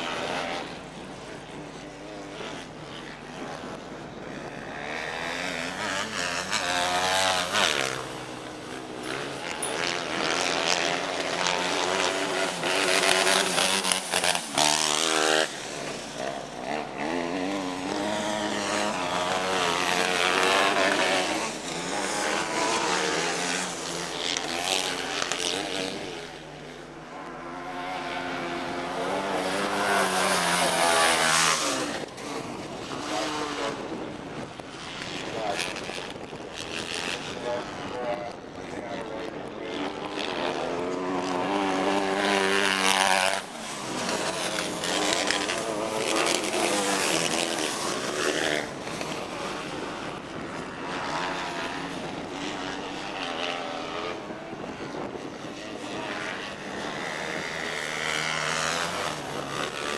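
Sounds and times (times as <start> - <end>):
buggy engines revving high: 0.0 - 59.9.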